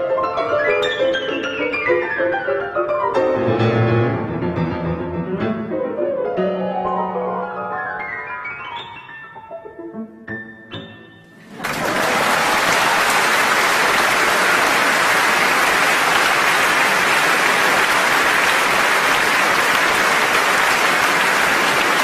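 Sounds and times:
audience applauding: 11.4 - 22.0.

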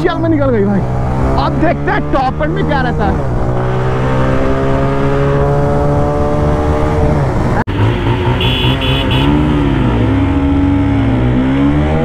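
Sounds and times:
motorcycle engine at high revs: 0.8 - 12.0.

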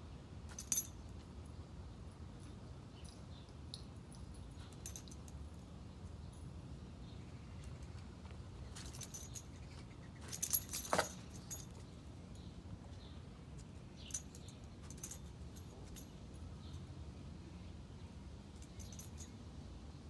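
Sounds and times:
dog tags jingling: 0.5 - 1.1, 2.4 - 5.7, 8.8 - 11.8, 14.0 - 16.7, 18.6 - 19.3.

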